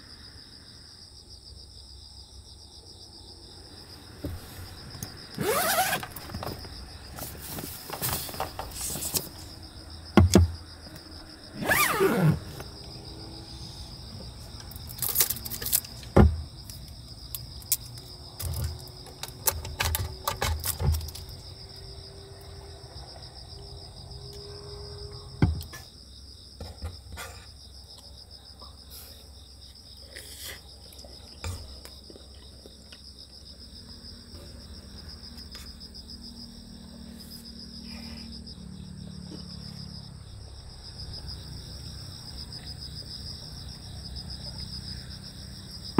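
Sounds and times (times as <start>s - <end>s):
crickets chirping: 0.0s - 45.9s
objects knocking on wooden table: 10.2s - 10.6s.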